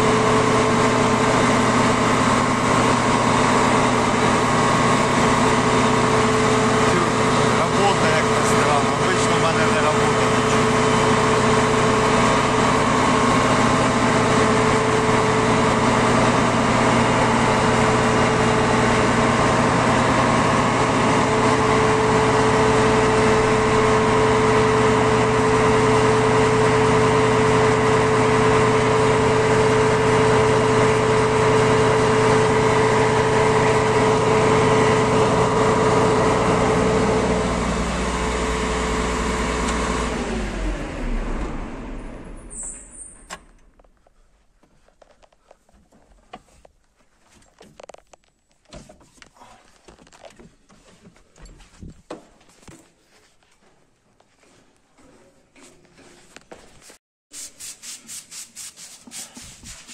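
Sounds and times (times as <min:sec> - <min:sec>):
combine harvester drone: 0:00.0 - 0:43.9.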